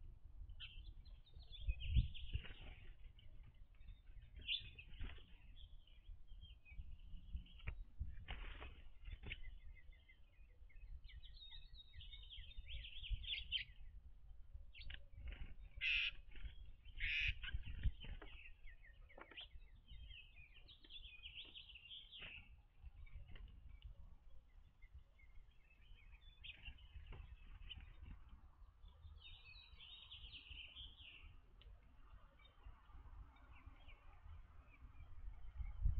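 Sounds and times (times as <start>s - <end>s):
small birds chirping: 0.0s - 35.9s
harsh bird calls: 14.8s - 23.4s.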